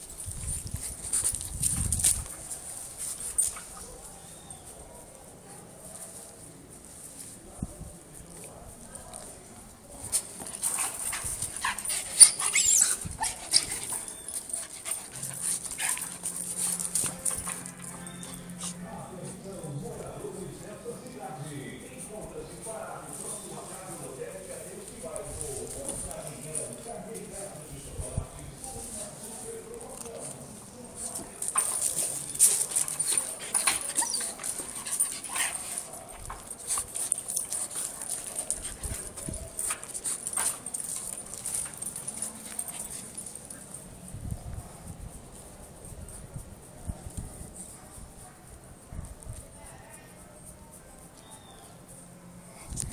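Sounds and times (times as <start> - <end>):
dog whining and yipping: 12.0 - 14.4, 33.5 - 34.4
metal chain clinking: 31.4 - 43.7.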